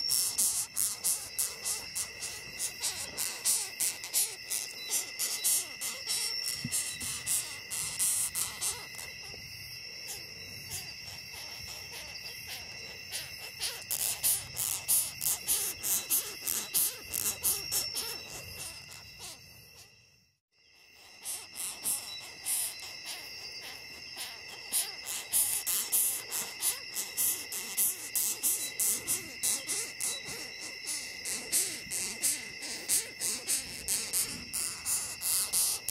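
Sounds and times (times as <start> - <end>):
beetle clicking and rasping: 0.0 - 19.4, 21.1 - 35.9.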